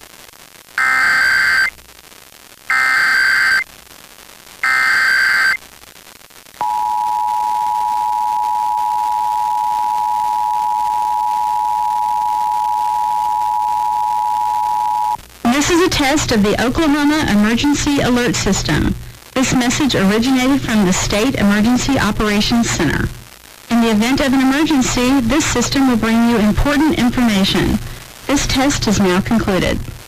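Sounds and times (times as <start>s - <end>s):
steady two-tone alert signal: 0.8s - 1.7s, 2.7s - 3.6s, 4.6s - 5.6s, 6.6s - 15.2s
buzzy digital data bursts: 0.8s - 5.9s.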